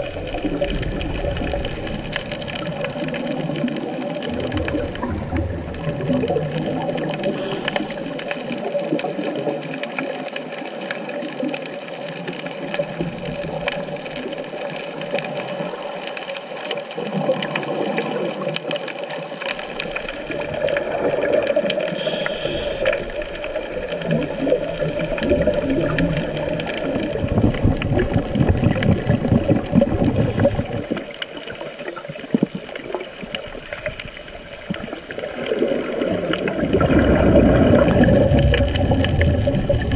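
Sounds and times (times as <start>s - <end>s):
low rumbling: 0.0s - 3.3s, 4.3s - 7.9s, 36.5s - 39.9s
muffled underwater rush: 0.0s - 39.9s.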